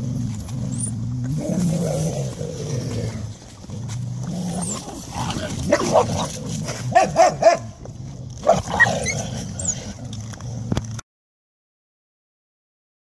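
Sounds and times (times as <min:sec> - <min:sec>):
dogs growling: 0:00.0 - 0:11.0
dogs yelping and snapping: 0:04.3 - 0:07.7, 0:08.3 - 0:10.8.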